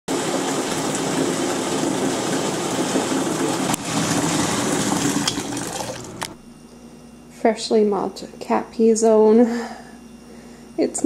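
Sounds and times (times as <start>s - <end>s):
faucet running into bucket: 0.1s - 6.4s.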